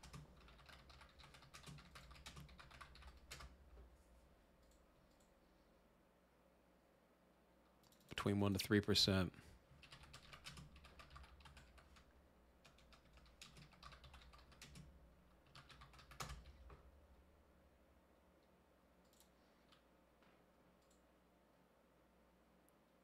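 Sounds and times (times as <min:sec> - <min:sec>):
typing on a keyboard: 0:00.0 - 0:03.6, 0:09.8 - 0:16.8.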